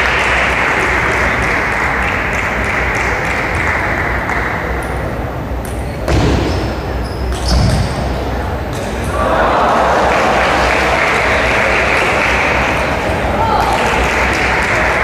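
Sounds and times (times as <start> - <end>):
spectators applauding: 0.0 - 4.7, 9.2 - 15.0.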